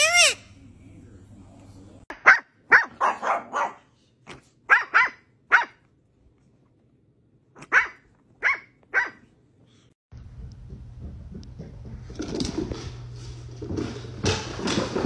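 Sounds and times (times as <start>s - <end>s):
small dog yapping: 4.7s - 5.8s, 7.6s - 9.2s.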